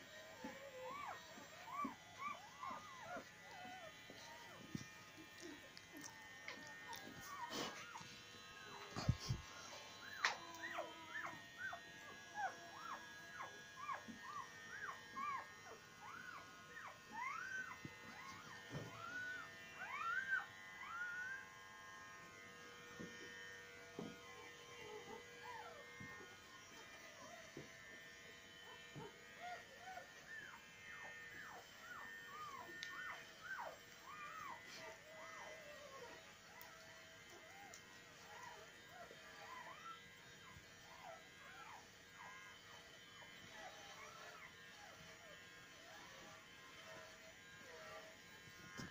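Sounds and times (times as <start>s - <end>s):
puppies squeaking and whining: 0.3s - 21.5s, 28.9s - 36.7s, 37.3s - 42.5s, 43.3s - 47.0s.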